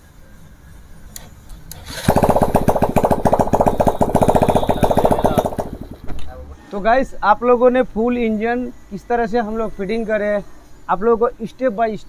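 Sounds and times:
single-cylinder engine running: 0:01.7 - 0:06.2.

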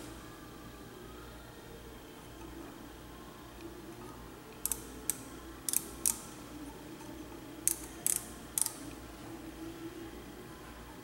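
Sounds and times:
micrometer ratchet clicking: 0:04.5 - 0:06.4, 0:07.6 - 0:09.0.

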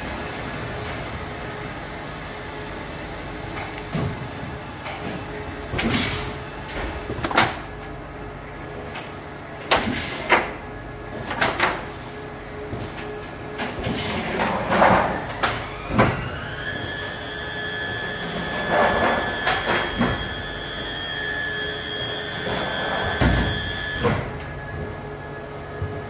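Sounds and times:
steady machine hum: 0:00.0 - 0:26.0
motor whine: 0:15.4 - 0:26.0.

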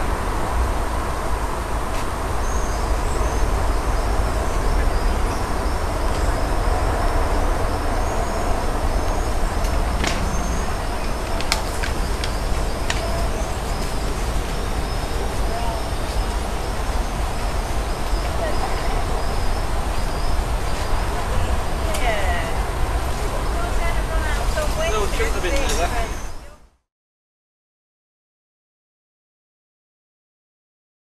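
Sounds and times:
wind buffeting microphone: 0:00.0 - 0:26.6
faint bird chirps: 0:07.9 - 0:22.2.

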